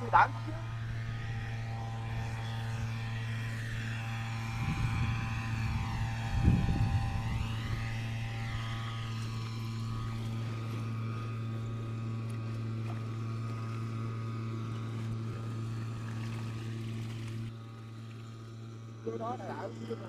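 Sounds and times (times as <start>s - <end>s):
motor humming steadily: 0.0s - 20.0s.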